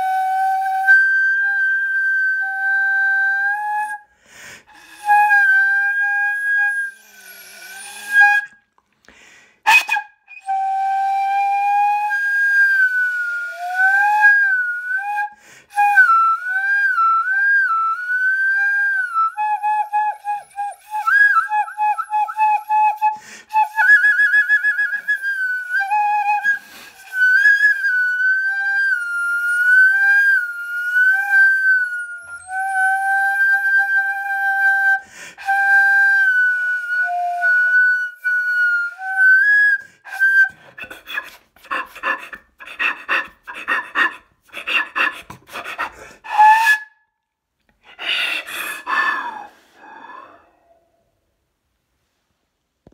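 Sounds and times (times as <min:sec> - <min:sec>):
breathy air bursts: 0:47.9 - 0:51.0.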